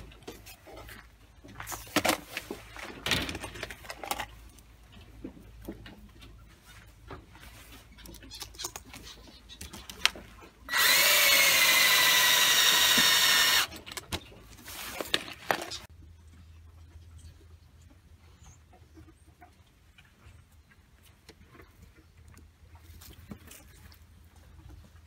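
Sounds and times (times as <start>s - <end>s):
clicks and knocks of parts handled: 0.0s - 6.2s
cordless drill boring into pipe: 10.7s - 13.8s.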